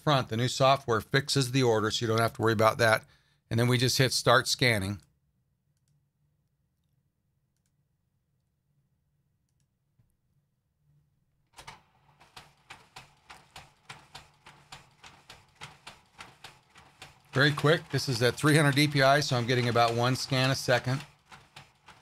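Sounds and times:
photo scanner feeding prints: 0:11.6 - 0:22.0
rapid clicks: 0:11.6 - 0:22.0.

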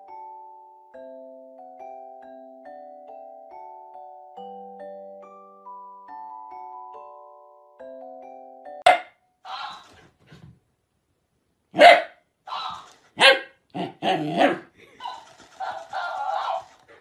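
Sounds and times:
dog barking and growling: 0:08.9 - 0:10.4, 0:11.7 - 0:17.0.

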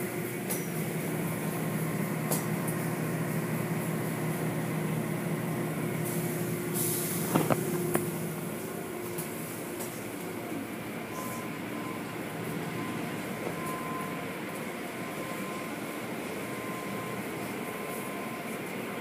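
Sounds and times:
car wash machinery humming: 0:00.0 - 0:19.0
hiss of spray on car: 0:06.1 - 0:07.4.

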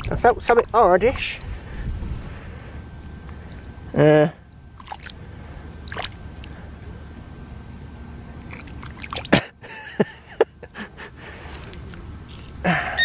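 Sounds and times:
water splashes: 0:00.0 - 0:00.9, 0:04.8 - 0:05.2, 0:05.8 - 0:06.6, 0:08.4 - 0:09.5, 0:11.4 - 0:12.2
hand sloshing in muddy water: 0:08.5 - 0:09.5.

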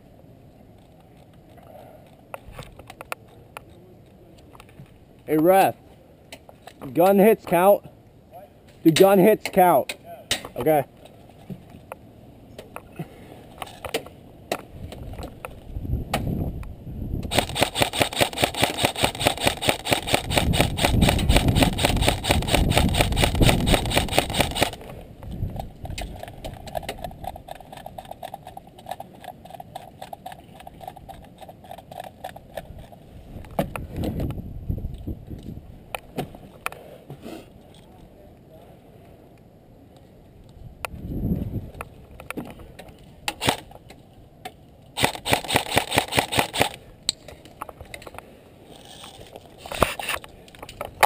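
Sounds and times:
airsoft rifle firing full auto: 0:17.3 - 0:24.8, 0:45.0 - 0:46.8.

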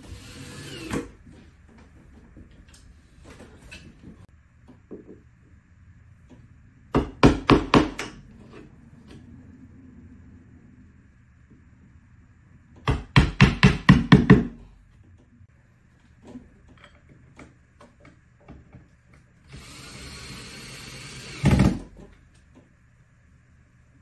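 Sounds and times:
cordless drill driving into wall: 0:19.5 - 0:22.0.

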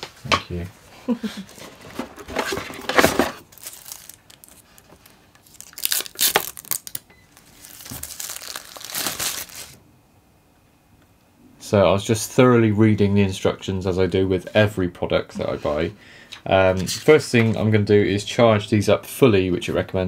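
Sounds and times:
cardboard and paper rustling: 0:01.4 - 0:09.8.

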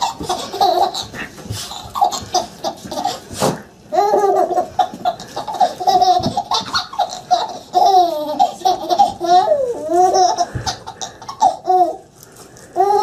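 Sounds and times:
baby laughing: 0:00.0 - 0:12.1, 0:12.8 - 0:13.0.

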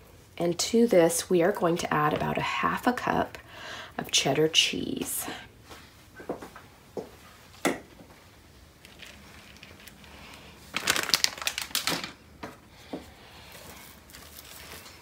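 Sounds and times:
shredded cheese rustling into bowl: 0:08.8 - 0:12.2, 0:13.4 - 0:15.0.

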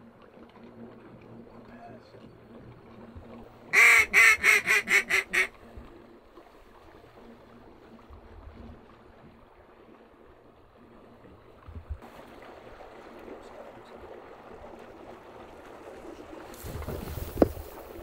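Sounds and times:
duck call quacks: 0:03.7 - 0:05.5.

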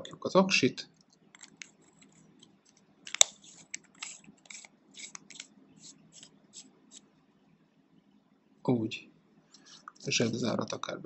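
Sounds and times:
metal threads scraping: 0:01.3 - 0:07.0.

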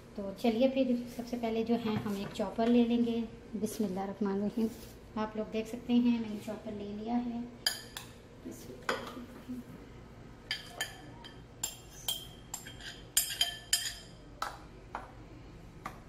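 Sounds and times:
bowls and utensils clinking: 0:10.5 - 0:14.2.

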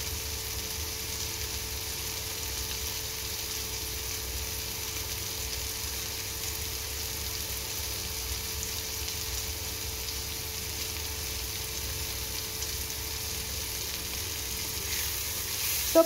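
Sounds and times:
vegetables sizzling in a pan: 0:00.0 - 0:16.0.

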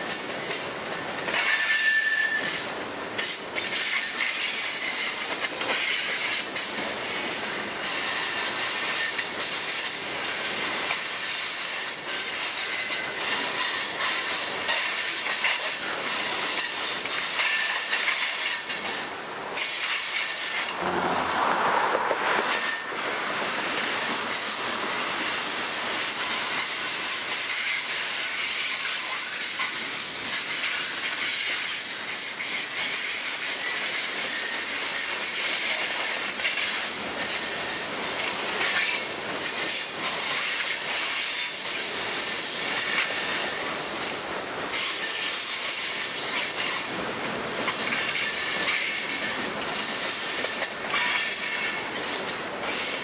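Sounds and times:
wheels clacking over rail joints: 0:00.0 - 0:43.7
high-pitched wheel squeal: 0:01.4 - 0:02.6, 0:07.8 - 0:15.0, 0:19.7 - 0:23.1, 0:47.8 - 0:53.0.

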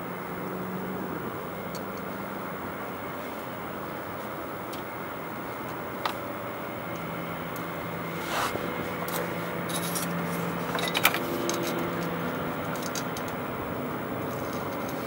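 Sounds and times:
steady low hum: 0:00.0 - 0:15.0
tool scraping and clicking on screws: 0:08.3 - 0:13.4, 0:14.2 - 0:15.0.

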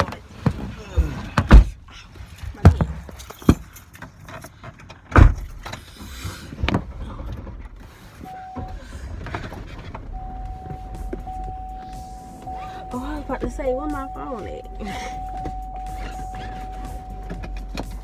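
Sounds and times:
steady electronic tone: 0:10.1 - 0:17.8.

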